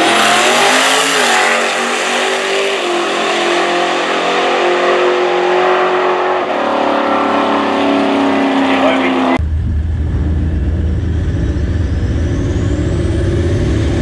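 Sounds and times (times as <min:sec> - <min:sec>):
diesel engine at full throttle: 0:00.0 - 0:14.0.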